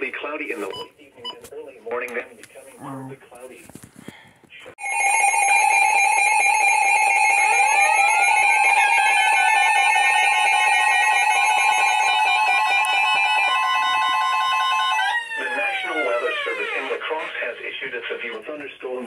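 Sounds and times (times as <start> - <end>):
two-tone alarm: 4.8 - 17.0.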